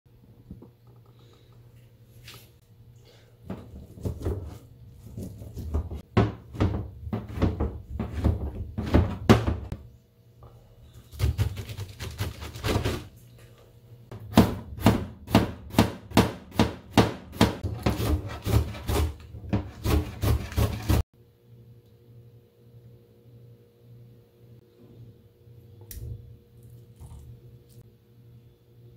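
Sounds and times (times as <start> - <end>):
knife chopping on cutting board: 14.2 - 21.0.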